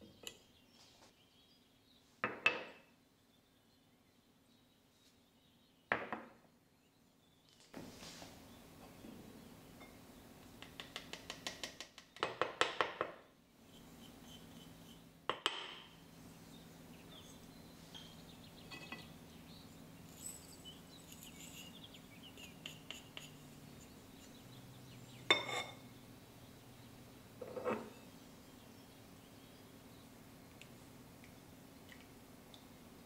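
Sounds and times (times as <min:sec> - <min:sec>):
whisk and dishes clinking on bowl: 0:20.1 - 0:24.4, 0:25.2 - 0:25.8.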